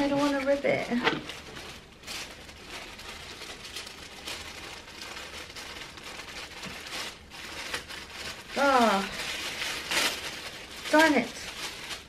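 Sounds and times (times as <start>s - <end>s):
tissue paper rustling: 0.0s - 12.0s.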